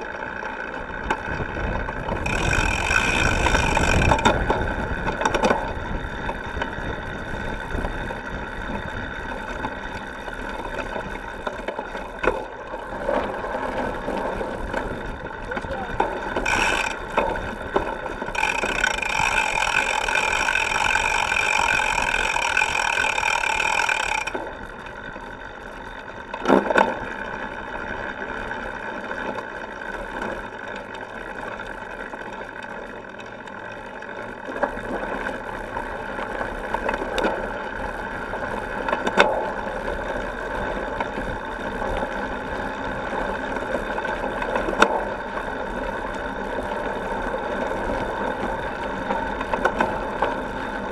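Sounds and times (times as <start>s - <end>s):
bicycle tyre and drivetrain rattle: 0.0s - 50.9s
buzzing: 2.2s - 4.3s, 16.4s - 17.2s, 18.3s - 24.4s.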